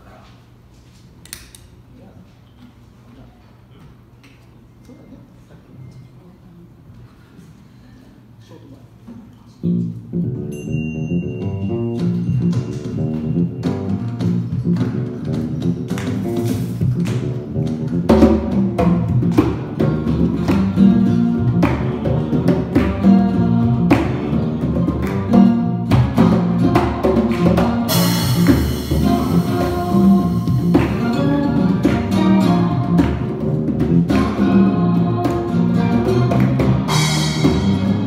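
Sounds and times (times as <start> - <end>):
electric bass: 9.6 - 38.0
acoustic guitar: 9.8 - 38.0
congas and percussion: 10.4 - 38.0
cymbal or shaker hiss: 27.9 - 30.8.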